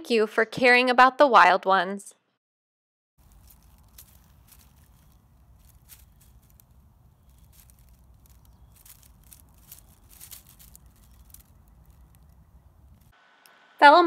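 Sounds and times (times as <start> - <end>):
dry leaves rustling and crackling: 3.2 - 13.2.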